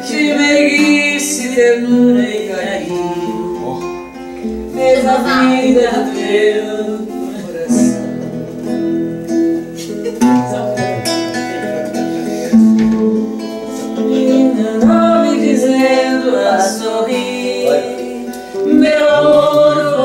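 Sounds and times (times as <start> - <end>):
voices singing: 0.0 - 9.1, 9.7 - 20.0
acoustic guitar strumming: 0.0 - 20.0.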